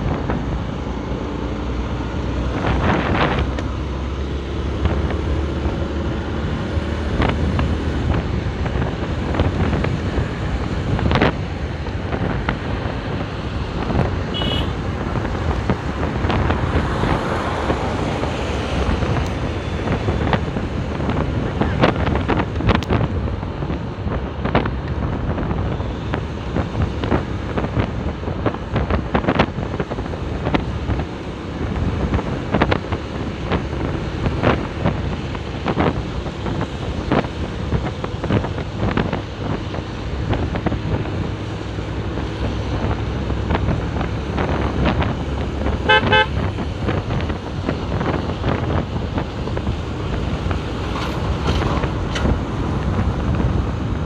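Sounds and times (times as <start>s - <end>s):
motorcycle road noise on wet road: 0.0s - 54.0s
wind buffeting microphone: 0.0s - 54.0s
vehicle horn short toots: 14.3s - 14.8s, 45.8s - 46.4s.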